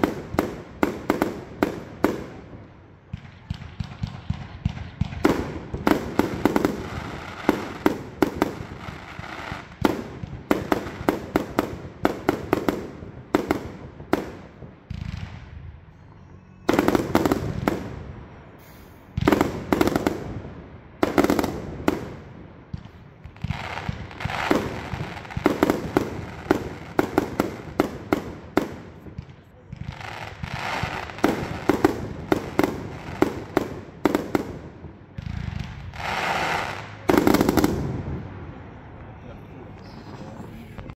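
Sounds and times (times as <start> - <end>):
crackling aerial firework bursts: 0.0 - 2.6, 3.5 - 15.5, 21.0 - 38.9
firework launch shots: 0.0 - 15.5.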